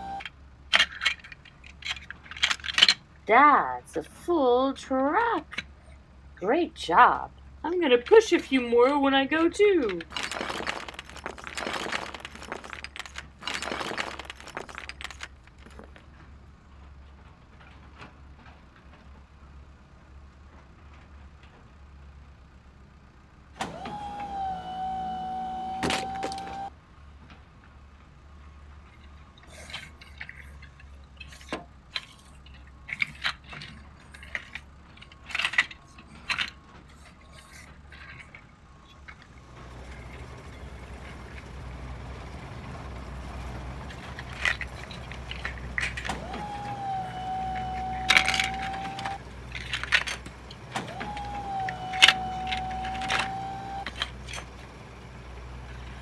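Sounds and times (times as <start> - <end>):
plastic bricks scraping and clattering: 0.1 - 3.2, 8.0 - 19.2, 28.7 - 41.8, 43.6 - 54.7.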